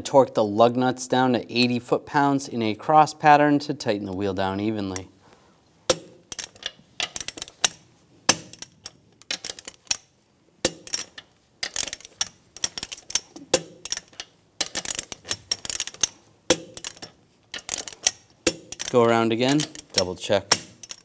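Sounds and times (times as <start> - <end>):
metallic clank of wrench: 5.9 - 21.0.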